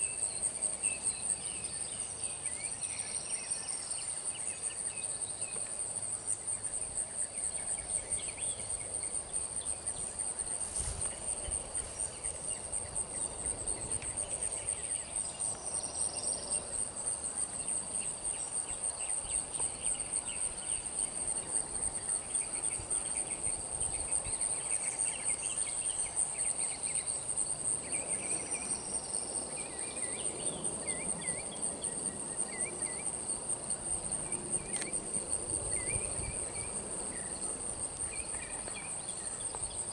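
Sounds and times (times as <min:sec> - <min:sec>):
insect chorus: 0:00.0 - 0:39.9
short insect chirps: 0:34.5 - 0:35.0.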